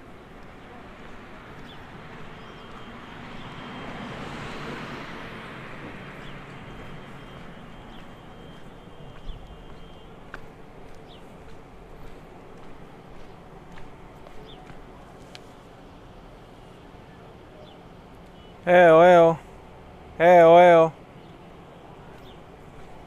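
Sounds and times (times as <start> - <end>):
vehicle passing: 0.0 - 17.4
city ambience: 0.0 - 23.0
bird chirps: 1.6 - 4.0, 6.2 - 10.3, 16.6 - 18.7.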